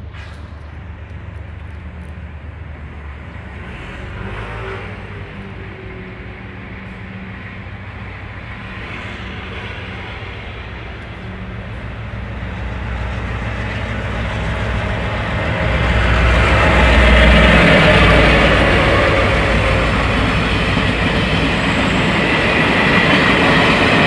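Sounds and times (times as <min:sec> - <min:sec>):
train wheels on rails: 0:00.0 - 0:24.0
diesel locomotive engine humming: 0:05.1 - 0:24.0.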